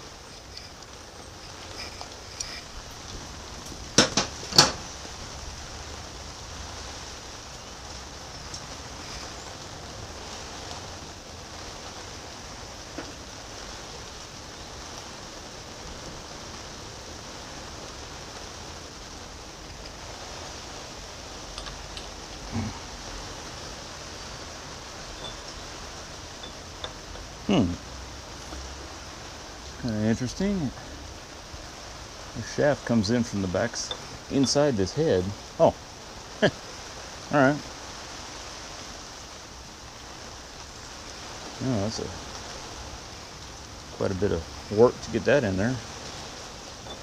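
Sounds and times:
steady hiss: 0.0 - 47.0
sharp metal clinks: 25.1 - 25.7, 26.4 - 27.0
metal tools knocking on iron: 25.2 - 25.5.

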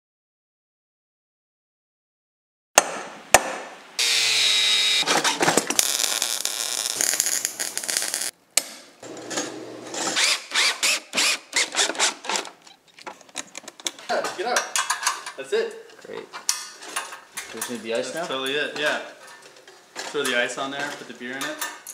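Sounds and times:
power drill running: 4.0 - 5.1, 10.2 - 12.3.

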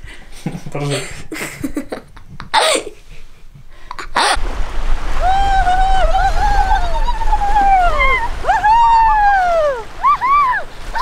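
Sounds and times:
wind rumbling on microphone: 4.3 - 11.0
girl laughing shriek: 5.2 - 11.0.

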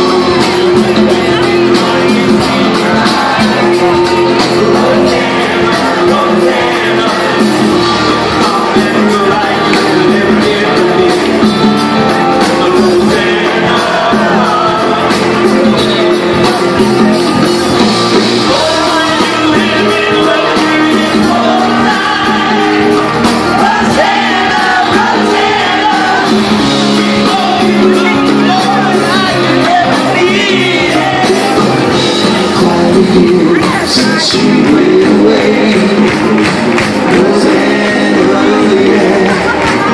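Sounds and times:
live rock band playing: 0.0 - 39.9
man singing lead vocal: 0.0 - 39.9.

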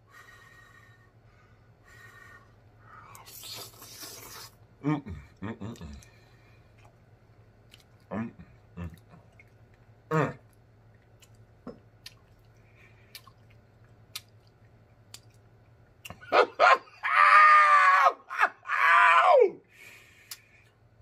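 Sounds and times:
man eating: 3.0 - 16.3
man exclaiming in delight: 17.1 - 19.6.

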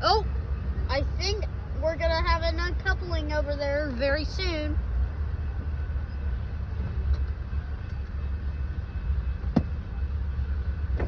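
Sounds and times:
truck engine idling: 0.0 - 11.0.

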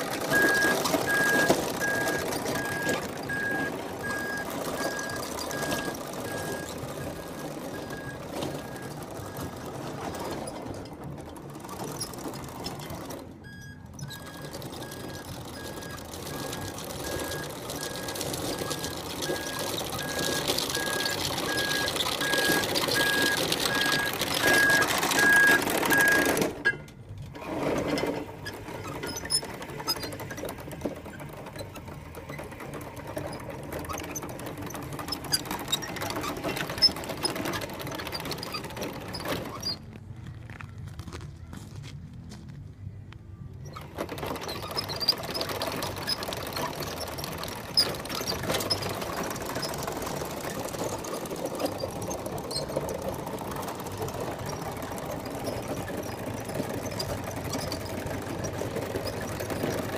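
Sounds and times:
evenly spaced beeps: 0.0 - 10.9, 11.6 - 26.4
toy bulldozer motor whirring: 0.0 - 41.7, 43.6 - 59.9
tracks crunching on gravel: 39.7 - 42.8.

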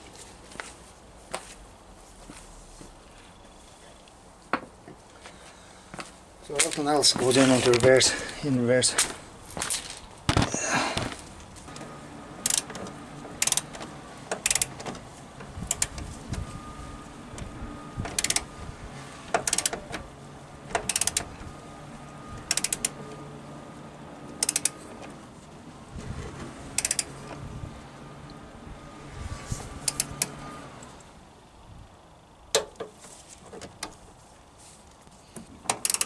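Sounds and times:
socket ratchet clicking: 12.4 - 12.8, 13.4 - 13.7, 14.3 - 14.8, 15.6 - 16.0, 18.1 - 18.5, 19.4 - 19.8, 20.8 - 21.3, 22.5 - 23.0, 24.4 - 24.7, 26.8 - 27.1, 29.8 - 30.4, 35.7 - 36.0.

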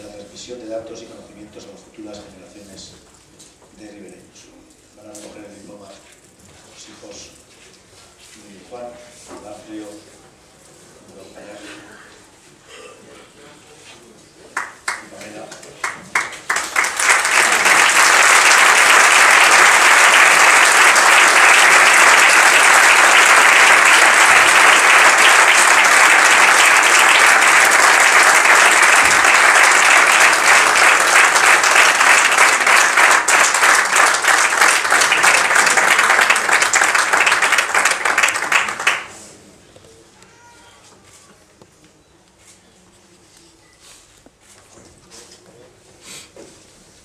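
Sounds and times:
audience applauding: 14.6 - 39.2.

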